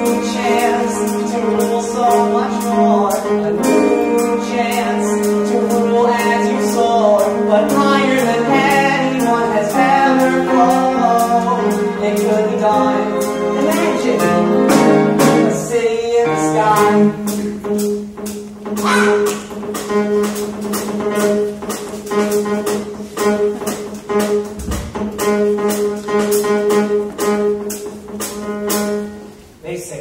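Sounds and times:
person singing: 0.0 - 17.4
pit band playing a show tune: 0.0 - 29.9.

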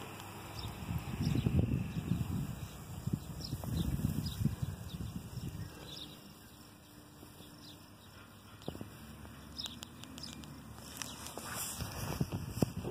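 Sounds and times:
wind rumble on microphone: 0.4 - 6.6, 9.6 - 12.9
small clicks: 8.6 - 11.5.

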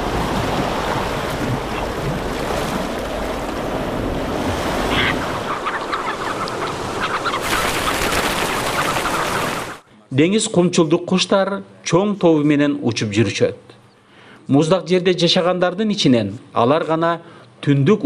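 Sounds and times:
surf on rocky shore: 0.0 - 9.8
sandpipers chirping: 4.9 - 9.8.

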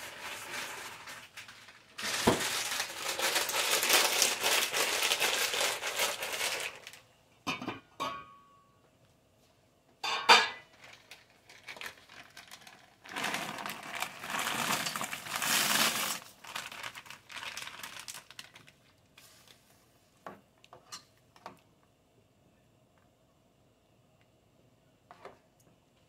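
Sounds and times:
plastic bag crinkling: 0.0 - 7.0, 10.7 - 19.7
vegetables pouring into pot: 0.0 - 7.0, 10.7 - 18.8.

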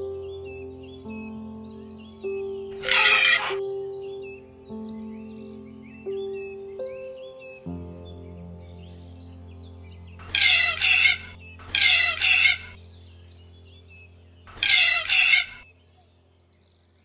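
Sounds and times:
ambient music drone: 0.0 - 17.0
cockatoo harsh calls: 2.7 - 3.6, 10.2 - 12.8, 14.5 - 15.7.

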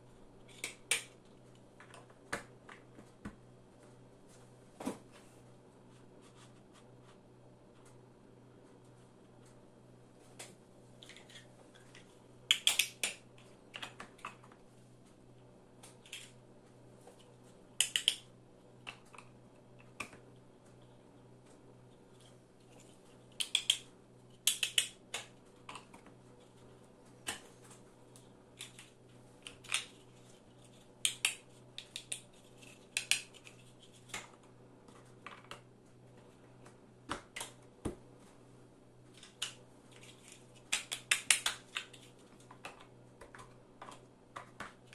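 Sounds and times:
faint low hum: 0.0 - 44.9
plastic blocks clicking: 12.5 - 13.2, 17.8 - 18.2, 24.5 - 25.9, 39.2 - 44.8.

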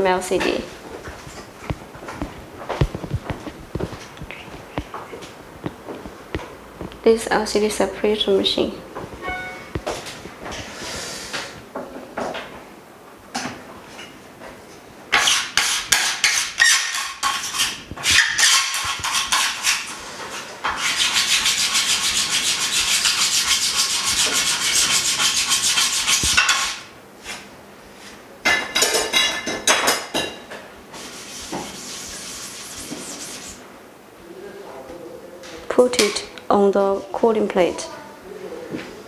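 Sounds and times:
gloved hands rubbing frosted plate: 20.9 - 26.8, 31.0 - 33.6.

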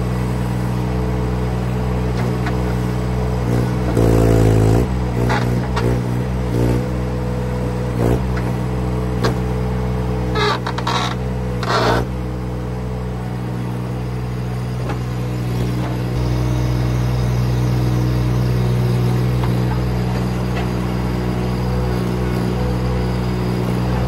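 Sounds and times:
skid steer engine running: 0.0 - 24.0
clanks and rattles: 10.4 - 12.0.

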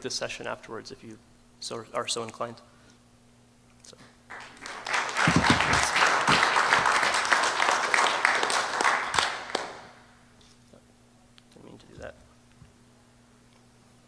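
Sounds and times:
audience applauding: 4.3 - 10.0.

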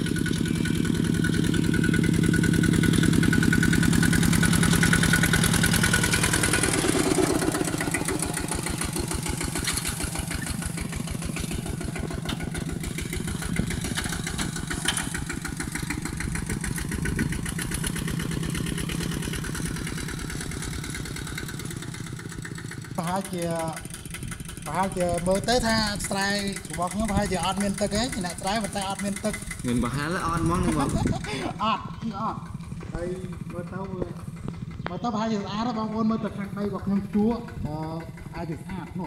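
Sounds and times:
diesel tractor engine running: 0.0 - 39.0.

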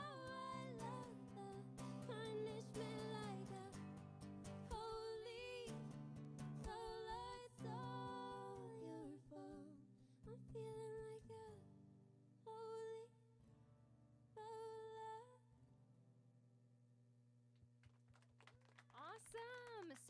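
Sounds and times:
woman singing: 0.0 - 3.8, 4.7 - 5.9, 6.6 - 11.6, 12.5 - 13.2, 14.4 - 15.4
acoustic guitar: 0.0 - 16.1.

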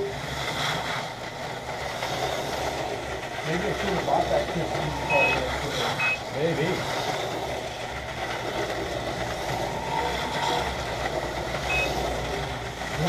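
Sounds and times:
slot cars whirring: 0.0 - 13.0
short electronic beep: 4.8 - 5.4, 6.0 - 6.2, 11.6 - 12.0.

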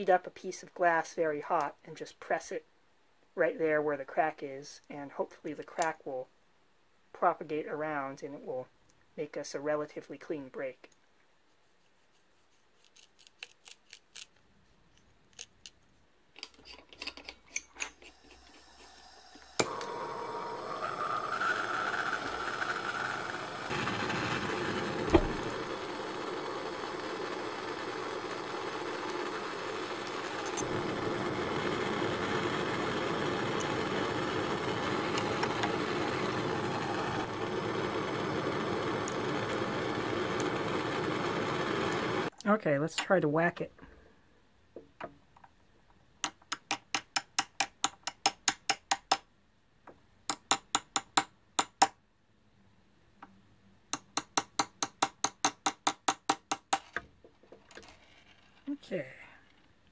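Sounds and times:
gas torch hissing: 18.2 - 42.3.

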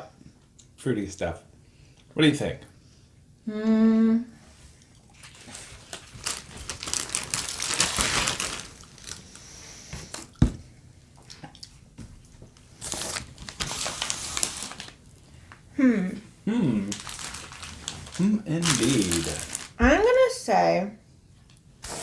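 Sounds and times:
plastic wrappers crinkling: 5.2 - 9.4, 12.8 - 15.6, 16.9 - 20.1.

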